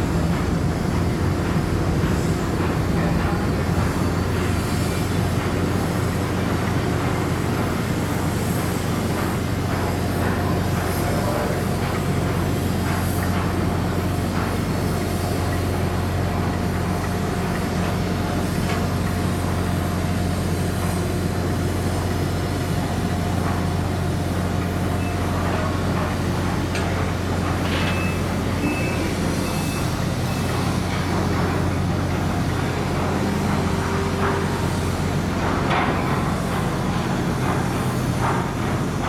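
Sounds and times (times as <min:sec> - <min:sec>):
ship diesel engine humming: 0:00.0 - 0:09.2.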